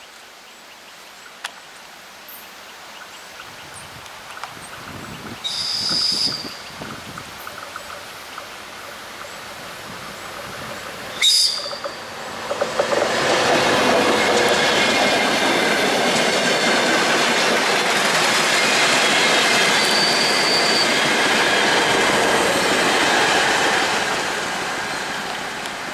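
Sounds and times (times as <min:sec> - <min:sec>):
wheel and rail noise: 0:04.0 - 0:25.9
train passing: 0:05.4 - 0:25.9.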